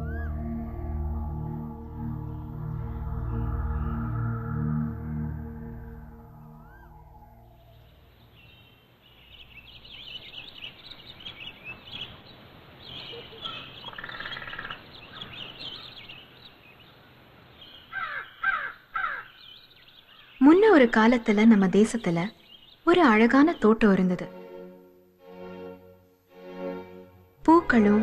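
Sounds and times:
birds chirping chorus: 0:06.6 - 0:24.0
loud harsh falling bird calls: 0:10.1 - 0:16.4, 0:17.6 - 0:20.4.

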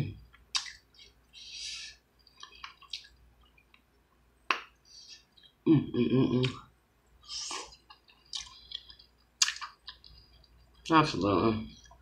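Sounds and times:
wet squishing and dripping: 0:07.5 - 0:11.0.

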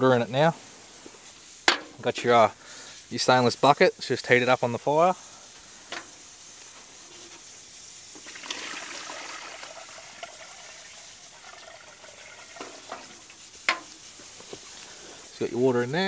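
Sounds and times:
water pouring and splashing: 0:05.6 - 0:16.0.

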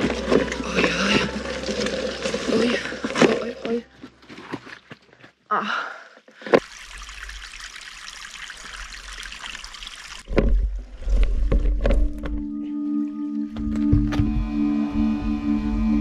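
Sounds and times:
low music tones: 0:12.0 - 0:16.0.

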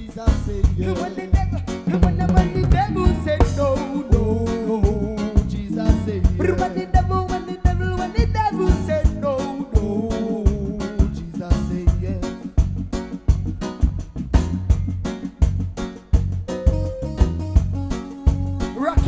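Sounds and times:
reggae band playing: 0:00.0 - 0:19.0
drum and cymbal strikes: 0:00.4 - 0:06.7.

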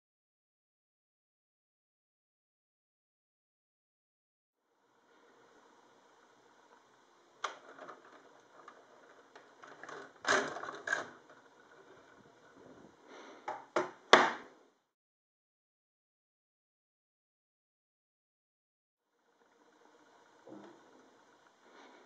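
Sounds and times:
plastic bricks clicking and sliding: 0:07.4 - 0:14.1.

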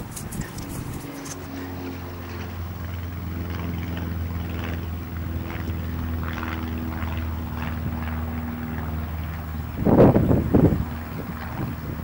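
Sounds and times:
footsteps through tall grass: 0:00.0 - 0:01.6
low engine drone: 0:00.0 - 0:12.0.

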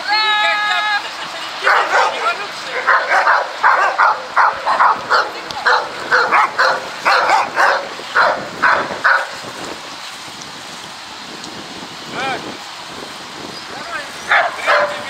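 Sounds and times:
dog barking: 0:01.6 - 0:02.2, 0:02.8 - 0:09.4, 0:14.3 - 0:15.0.

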